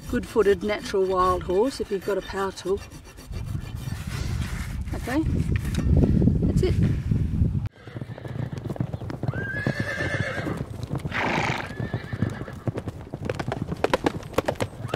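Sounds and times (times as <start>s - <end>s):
horse hoofbeats clip-clopping: 7.7s - 14.9s
horse whinnying: 7.8s - 12.7s.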